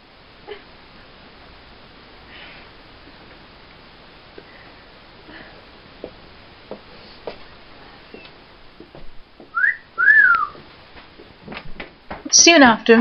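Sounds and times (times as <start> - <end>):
faint room noise: 0.0 - 13.0
soft footsteps: 6.0 - 12.3.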